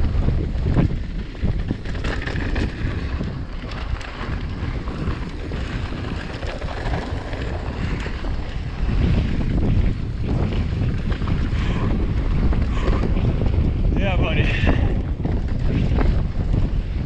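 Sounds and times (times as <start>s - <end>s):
bike clicks and rattles: 0.0s - 17.0s
wind buffeting microphone: 0.0s - 17.0s
tyres rolling over dirt: 0.4s - 13.6s.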